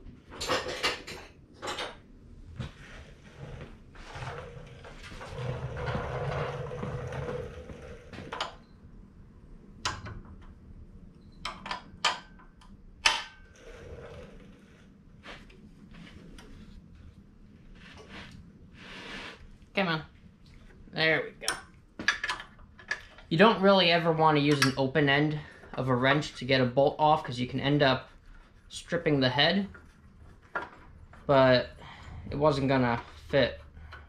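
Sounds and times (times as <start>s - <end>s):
rustling: 13.6s - 20.9s.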